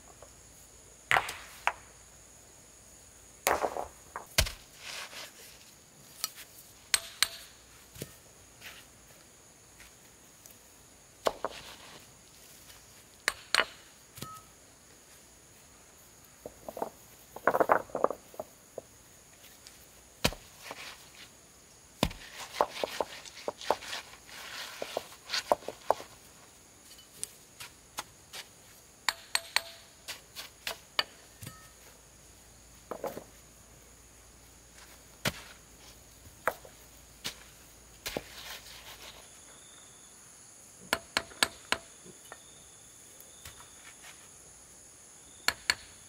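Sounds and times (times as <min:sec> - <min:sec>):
stones clacking together: 0:03.5 - 0:04.6, 0:11.3 - 0:11.9, 0:16.4 - 0:18.9, 0:22.0 - 0:26.2
soil and grit scraping: 0:04.4 - 0:06.5, 0:20.3 - 0:21.3, 0:22.0 - 0:26.2, 0:36.6 - 0:39.4.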